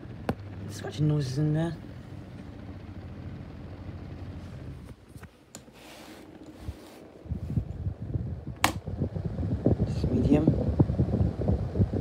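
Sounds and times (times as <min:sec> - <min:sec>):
fan bearings scraping rattle: 0:00.0 - 0:08.0
desk fan humming: 0:00.0 - 0:12.0.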